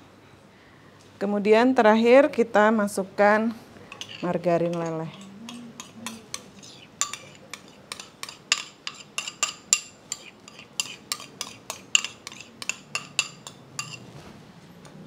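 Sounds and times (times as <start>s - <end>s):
metal spoon clinking ceramic bowl: 3.9s - 14.0s.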